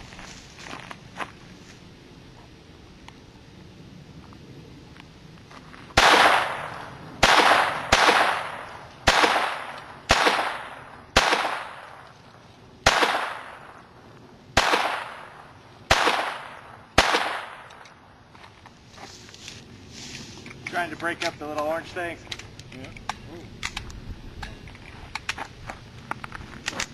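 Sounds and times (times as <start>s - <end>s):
pistol shots with echo: 6.0s - 12.0s, 12.8s - 13.8s, 14.5s - 17.9s.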